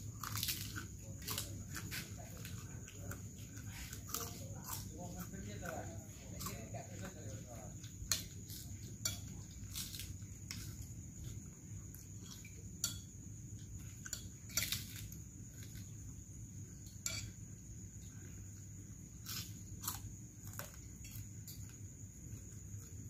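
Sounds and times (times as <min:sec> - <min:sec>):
crickets chirring: 0:00.0 - 0:23.0
spoons clinking on plates: 0:08.9 - 0:09.6, 0:12.8 - 0:13.1, 0:16.9 - 0:17.4.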